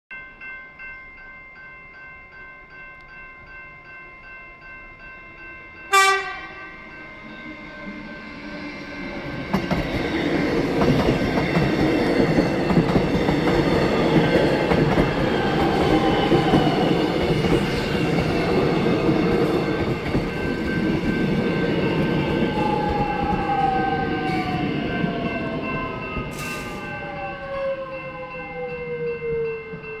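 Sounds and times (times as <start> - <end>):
level crossing warning bells: 0.1 - 30.0
train horn blast: 5.9 - 6.8
train wheels rumbling on rails: 7.4 - 30.0.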